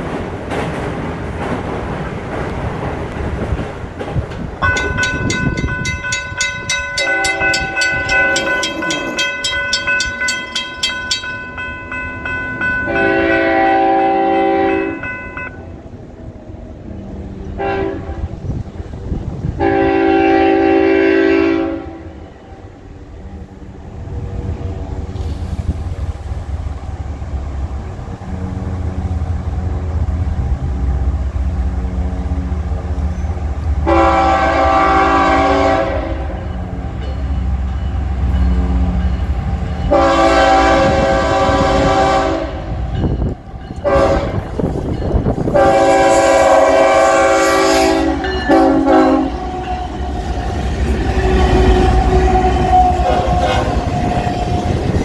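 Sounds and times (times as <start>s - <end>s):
diesel locomotive rumble: 0.0s - 55.0s
railroad crossing bell ringing: 4.6s - 15.9s, 33.1s - 55.0s
locomotive air horn blasts: 7.0s - 9.3s, 12.9s - 15.6s, 17.6s - 18.4s, 19.6s - 22.2s, 33.8s - 36.4s, 39.9s - 42.8s, 43.8s - 44.6s, 45.5s - 54.3s.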